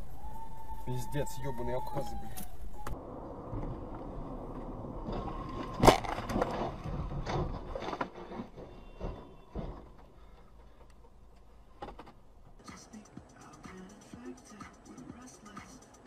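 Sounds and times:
road noise inside car: 0.0 - 16.0
car crash bang: 4.7 - 10.1
bangs and clatters of debris: 5.0 - 10.9.

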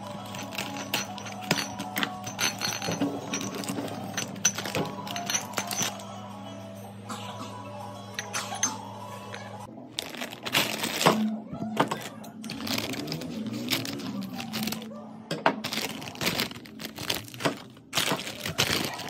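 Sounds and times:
crinkly chip bag rustling: 9.7 - 14.9, 15.6 - 19.0
scissors cutting plastic bag: 10.0 - 14.9, 15.6 - 19.0.

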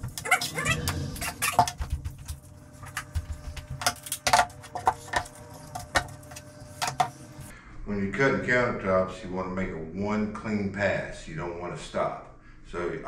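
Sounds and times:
footsteps: 0.0 - 7.5.

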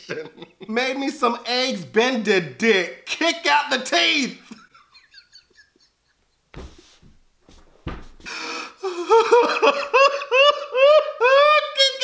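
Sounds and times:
man laughing hard: 4.5 - 6.2, 8.8 - 11.8.

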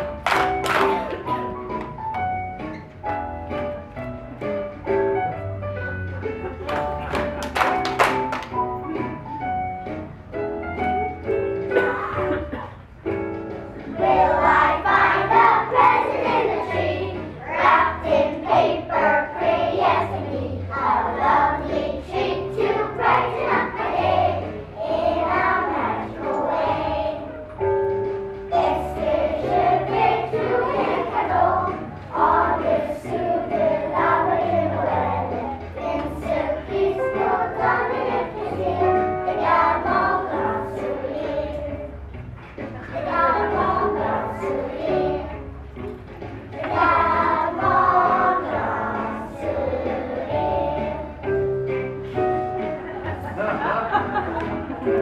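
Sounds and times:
children's choir singing: 13.9 - 27.7, 28.4 - 42.0, 42.8 - 45.6, 46.4 - 55.0.

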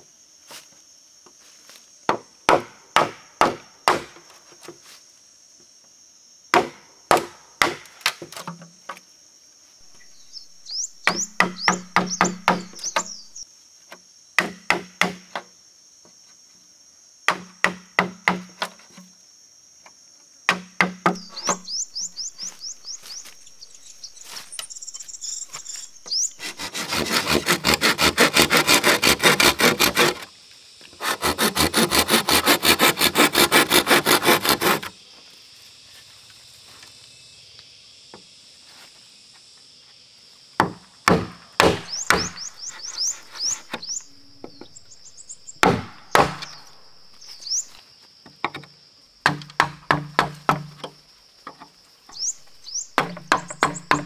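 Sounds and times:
hand saw cutting bamboo: 25.5 - 30.3, 30.9 - 34.9, 41.1 - 43.9, 45.6 - 46.8.

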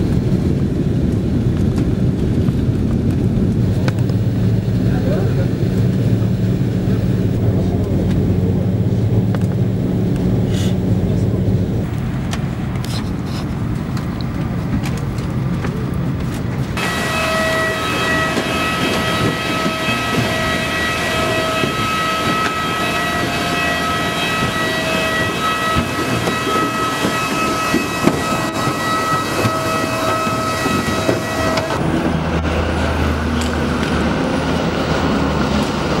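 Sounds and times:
low steady hum: 0.0 - 21.1
jet engine high whine: 0.0 - 36.0
jet engine rushing roar: 0.0 - 36.0.

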